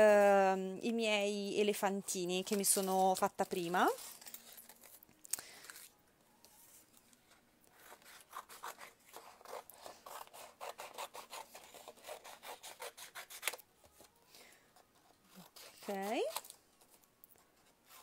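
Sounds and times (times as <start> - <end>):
scissors cutting paper: 7.7 - 14.1, 15.0 - 17.1.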